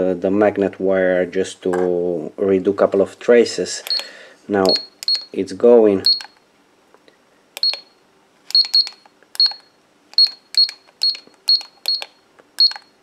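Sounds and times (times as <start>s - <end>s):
button clicks: 3.8s - 5.3s, 6.0s - 6.4s, 7.6s - 7.9s, 8.5s - 12.9s
short high beeps: 3.9s - 4.1s, 6.1s - 6.3s, 8.5s - 12.9s.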